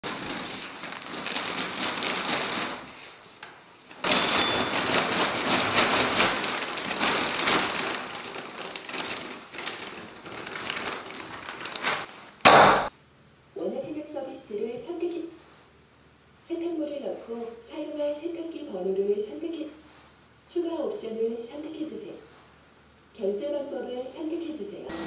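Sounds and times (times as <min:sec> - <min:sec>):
plastic bag crinkling: 0:00.0 - 0:12.9.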